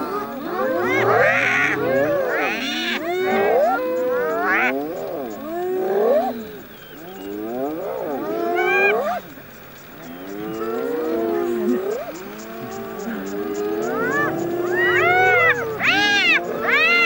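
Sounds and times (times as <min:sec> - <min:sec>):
hyenas squealing and whooping: 0:00.0 - 0:06.3, 0:10.8 - 0:17.0.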